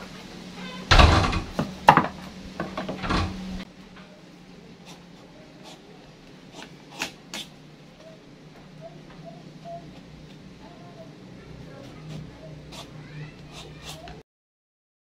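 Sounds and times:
knife scraping gourd skin: 6.5s - 7.6s, 12.0s - 14.2s.

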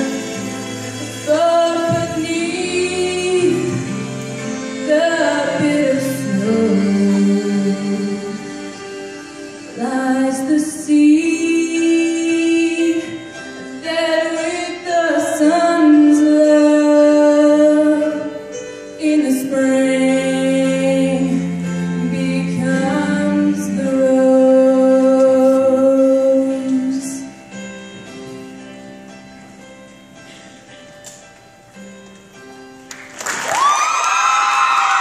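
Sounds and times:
woman singing slow song: 0.0s - 8.9s, 9.7s - 27.4s.

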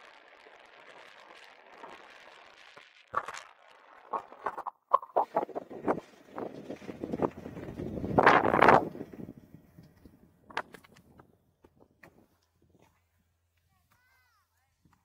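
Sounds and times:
skis sliding on snow: 0.0s - 9.2s
loud scrapes and knocks: 4.1s - 11.1s.

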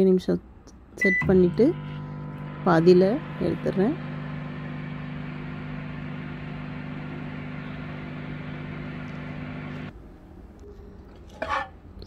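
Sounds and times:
microwave oven humming: 1.0s - 9.9s.

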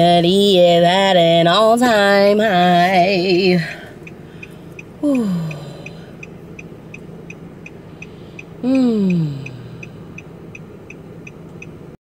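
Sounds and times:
faint ticking: 2.5s - 12.0s
woman sighing: 5.0s - 6.1s, 8.6s - 10.0s.

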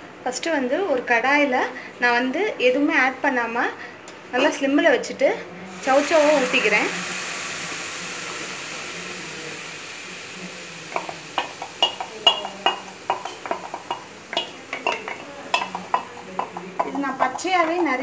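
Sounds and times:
faint steady hiss: 5.5s - 18.0s.

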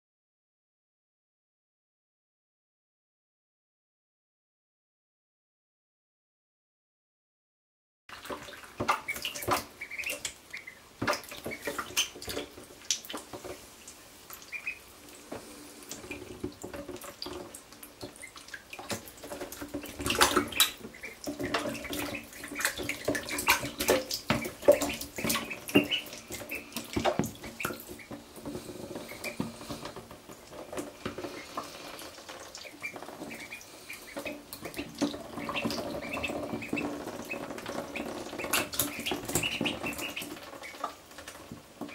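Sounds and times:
ducklings splashing in water: 8.1s - 41.9s
duckling peeps: 8.3s - 13.2s, 14.3s - 14.9s, 18.0s - 19.0s, 19.6s - 28.2s, 31.2s - 41.0s.

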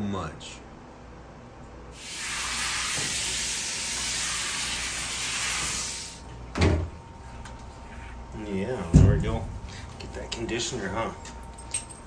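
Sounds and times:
hand sprayer hissing water: 2.0s - 6.2s.

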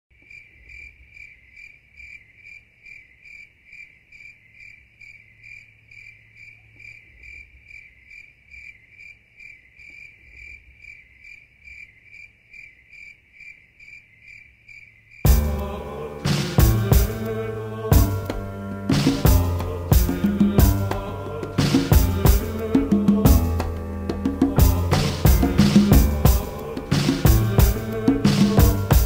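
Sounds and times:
cricket-like chirping: 0.2s - 15.3s.

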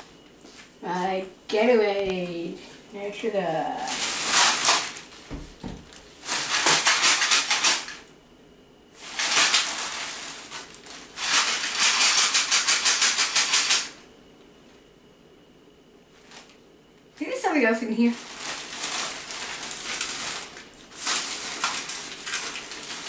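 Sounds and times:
plastic bag rustling: 3.4s - 8.1s, 9.0s - 12.2s, 16.1s - 16.6s, 17.2s - 23.0s.

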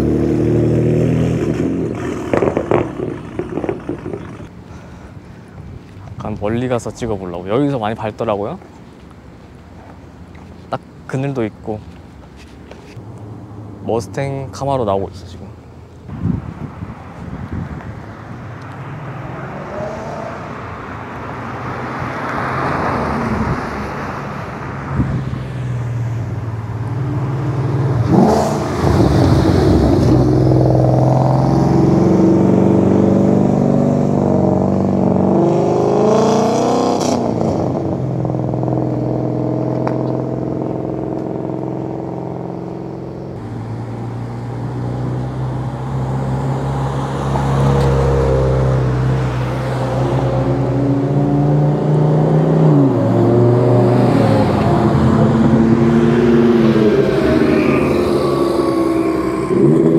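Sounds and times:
car engines accelerating past: 0.0s - 4.6s, 18.5s - 59.9s.

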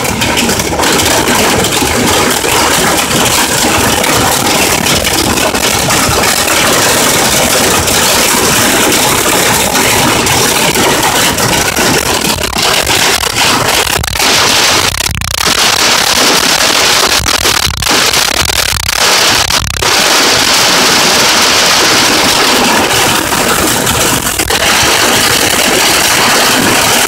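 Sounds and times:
hail pelting car roof: 0.0s - 27.0s.

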